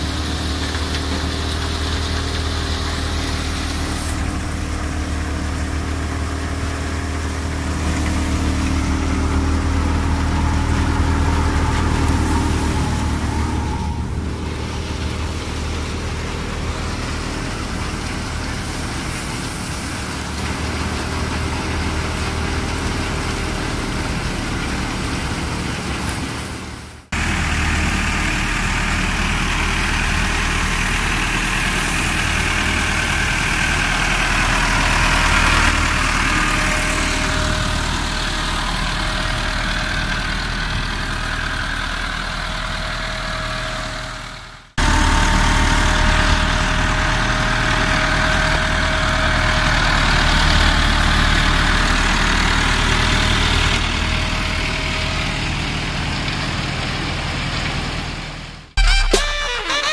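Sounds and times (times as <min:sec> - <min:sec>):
thresher running: 0:00.0 - 0:26.2
tractor diesel engine running: 0:00.0 - 0:59.9.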